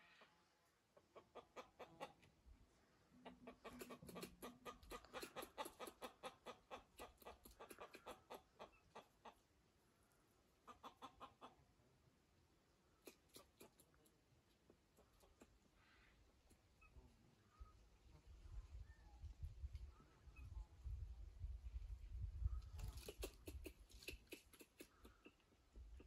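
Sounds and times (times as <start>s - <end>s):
chicken clucking: 1.0s - 2.4s, 3.1s - 9.5s, 10.6s - 11.7s, 13.0s - 15.7s, 22.8s - 26.0s.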